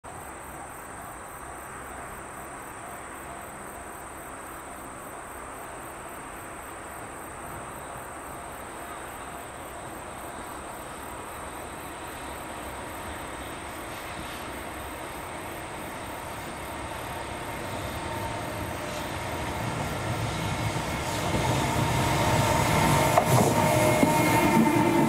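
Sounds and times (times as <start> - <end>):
insects trilling: 0.2 - 25.0
pulsing insect chirp: 3.4 - 25.0
electric freight train: 5.8 - 25.0.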